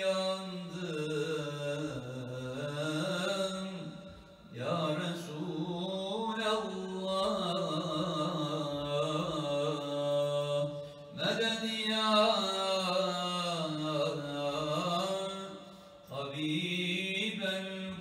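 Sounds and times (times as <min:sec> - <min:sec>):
man chanting unaccompanied: 0:00.0 - 0:18.0
man breathing: 0:15.6 - 0:16.0.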